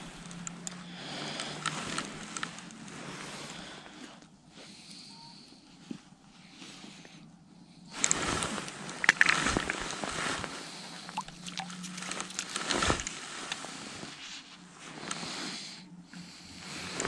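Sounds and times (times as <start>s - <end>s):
jacket rustling and crackling: 8.0s - 14.2s.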